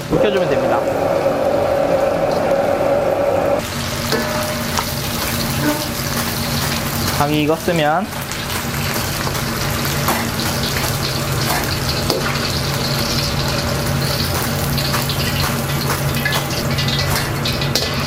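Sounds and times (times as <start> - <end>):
steady low hum: 0.0 - 5.6
chicken deep-frying in oil: 0.0 - 18.0.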